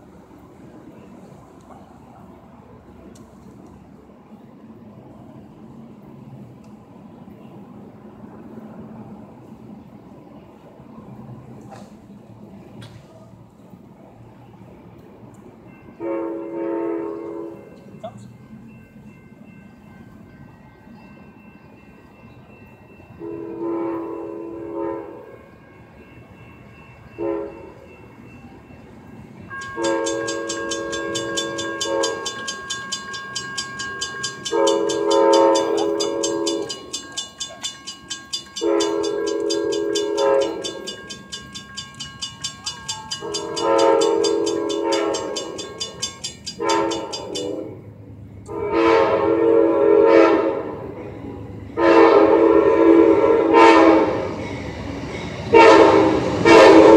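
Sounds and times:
crossing signal bell ringing: 15.4s - 48.0s, 52.5s - 56.9s
train horn blasts: 16.0s - 17.9s, 23.2s - 25.7s, 27.2s - 27.8s, 29.5s - 47.8s, 48.5s - 51.0s, 51.8s - 54.4s, 55.4s - 56.9s.

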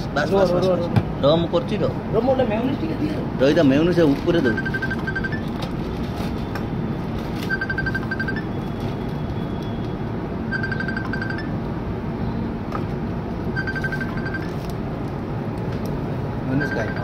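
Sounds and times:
electronic beeping trill: 4.4s - 5.5s, 7.5s - 8.5s, 10.5s - 11.5s, 13.6s - 14.6s, 16.5s - 17.0s.

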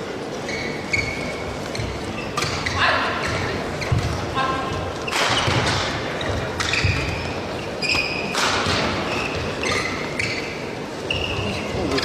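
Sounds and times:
crowd noise in large hall: 0.0s - 12.0s
shoes squeaking on court floor: 0.0s - 12.0s
rackets striking shuttlecock: 5.0s - 7.2s, 7.9s - 10.0s.

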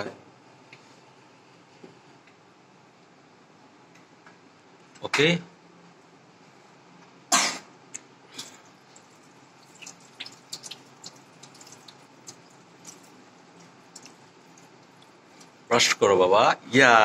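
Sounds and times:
water drips and splashes: 8.4s - 15.7s
tap water falling into basin: 9.0s - 15.6s.

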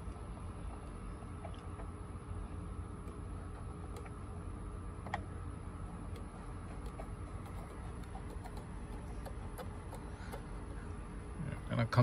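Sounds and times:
steady low hum: 0.0s - 12.0s
light ticks and clicks of hand work: 6.1s - 10.5s.

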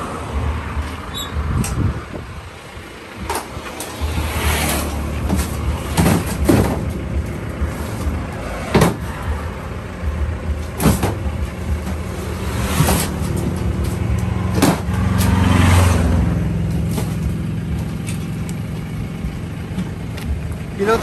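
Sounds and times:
steady low rumble: 0.0s - 15.2s, 16.0s - 21.0s
knocks and clanks from metal cargo box: 5.1s - 9.3s, 10.5s - 15.4s.

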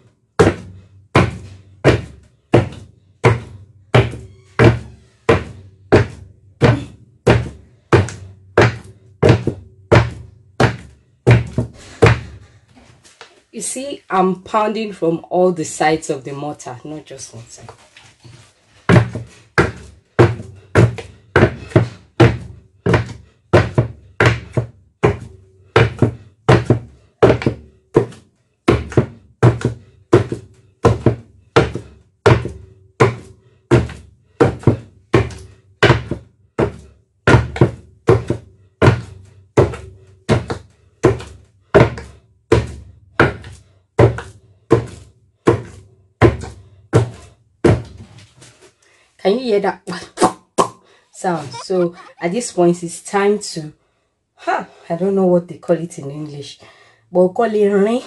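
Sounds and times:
pestle pounding in wooden mortar: 0.4s - 12.5s, 18.8s - 48.0s.

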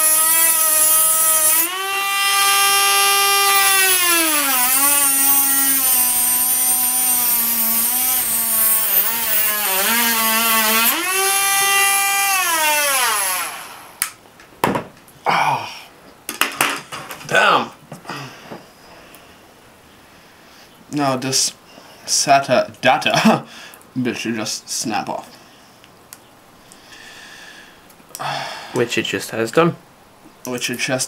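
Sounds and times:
rotary tool cutting plastic: 0.0s - 13.7s
handling clicks and knocks: 16.3s - 17.3s.

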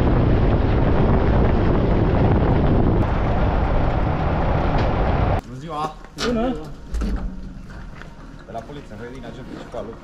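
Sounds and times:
wind buffeting microphone: 0.0s - 5.4s.

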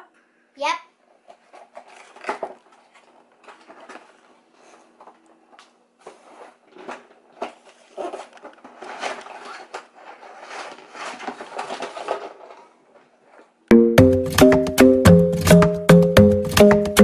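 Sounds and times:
cardboard and plastic rustling: 1.0s - 13.6s
loud music: 13.7s - 17.0s.

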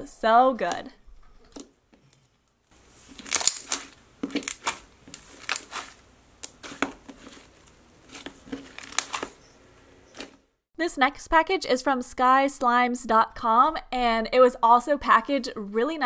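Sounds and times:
slime popping and squelching: 2.8s - 9.4s.

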